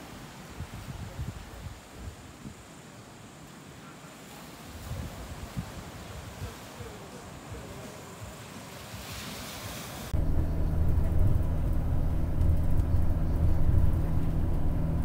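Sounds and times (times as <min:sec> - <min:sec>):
surf and wind hiss: 0:00.0 - 0:10.2
road noise: 0:07.4 - 0:15.0
bus engine rumble: 0:10.1 - 0:15.0.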